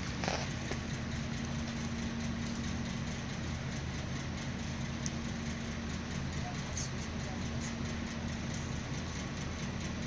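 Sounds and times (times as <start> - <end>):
engine idling: 0.0 - 10.0.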